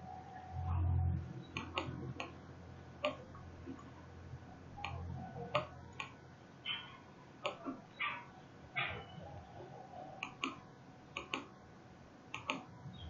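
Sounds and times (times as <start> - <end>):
faint low hum: 0.0 - 13.0
computer mouse clicking: 1.5 - 2.4, 3.0 - 3.9, 4.8 - 6.8, 7.4 - 7.8, 10.2 - 11.5, 12.3 - 12.7.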